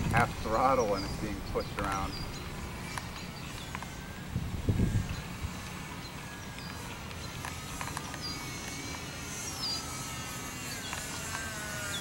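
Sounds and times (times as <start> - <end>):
wind rumble: 0.0 - 6.1
model plane motor whining: 0.0 - 12.0.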